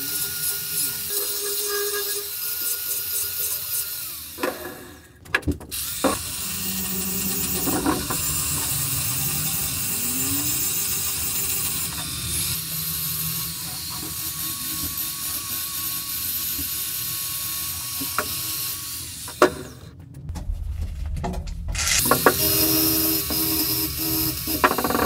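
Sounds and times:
angle grinder sanding steel: 0.0 - 4.4, 5.8 - 18.9.

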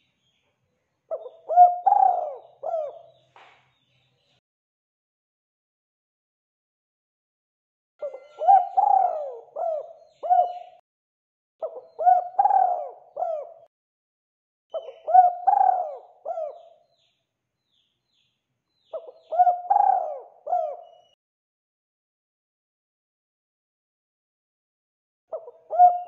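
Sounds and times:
dove cooing: 1.1 - 3.2, 8.0 - 10.8, 11.6 - 13.7, 14.7 - 16.8, 19.0 - 21.1, 25.3 - 26.0.

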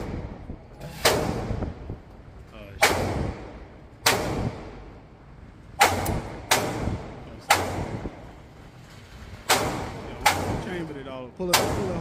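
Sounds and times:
gunshots with ringing echo: 2.8 - 4.9, 5.8 - 8.2, 9.5 - 10.7.

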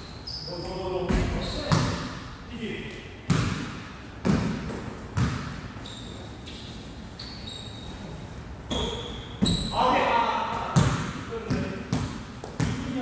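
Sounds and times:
sneaker squeaks on floor: 0.0 - 2.0, 5.2 - 9.9
basketball bouncing on court floor: 1.1 - 2.1, 3.3 - 5.7, 10.5 - 13.0.

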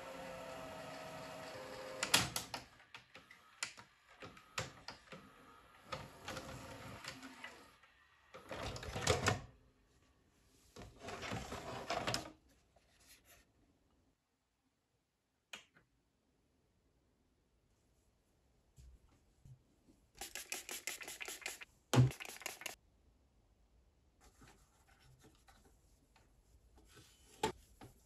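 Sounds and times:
tape mechanism clicking and whirring: 0.0 - 9.4.

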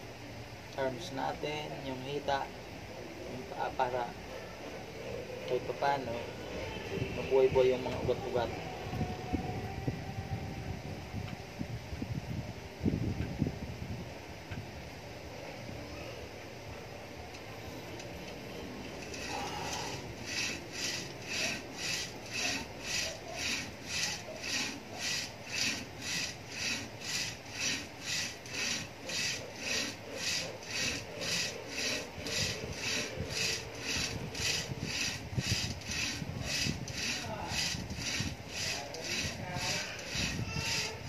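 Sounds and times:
rope rasping through ring: 18.1 - 41.0.

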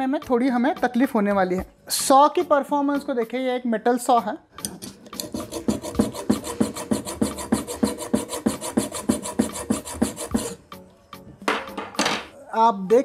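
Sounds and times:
hacksaw sawing metal: 4.7 - 10.6.

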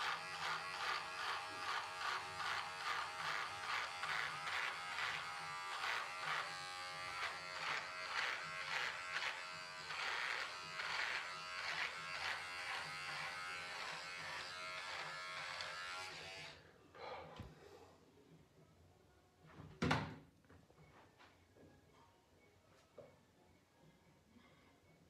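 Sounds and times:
electric shaver buzzing through beard: 0.0 - 16.6.

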